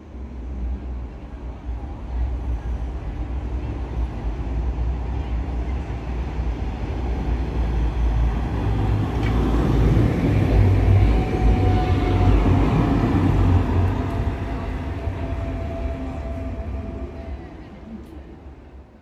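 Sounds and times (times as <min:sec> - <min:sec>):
tram rumbling on rails: 0:00.0 - 0:19.0.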